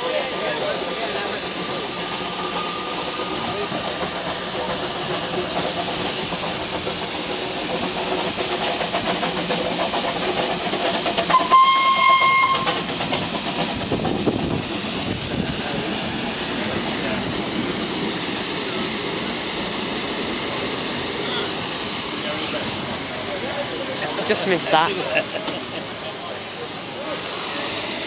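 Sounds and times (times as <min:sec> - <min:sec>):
steam locomotive hissing: 0:00.0 - 0:28.0
steam whistle blast: 0:11.3 - 0:12.8.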